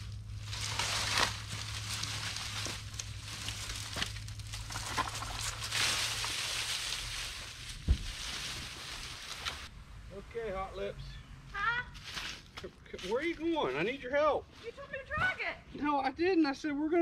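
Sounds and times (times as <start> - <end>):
brush dragged through dry leaves: 0.0 - 9.7
steady low hum: 0.0 - 14.1
sharp thump: 7.8 - 8.2.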